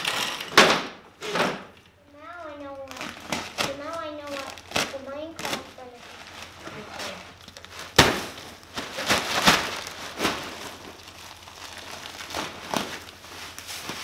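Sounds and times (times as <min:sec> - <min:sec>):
plastic crinkling: 0:02.4 - 0:14.0
wood shavings rustling: 0:02.6 - 0:14.0
bag thumping down: 0:07.9 - 0:10.9.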